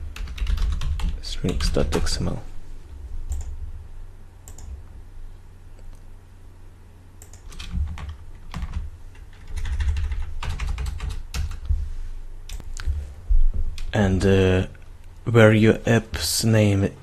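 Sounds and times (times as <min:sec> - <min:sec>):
computer keyboard typing: 0:00.0 - 0:02.2, 0:03.3 - 0:03.6, 0:04.4 - 0:04.7, 0:07.2 - 0:11.7.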